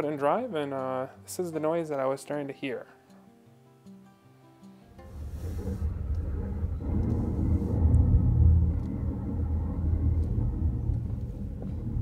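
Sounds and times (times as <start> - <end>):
car brakes rumbling: 5.0 - 12.0.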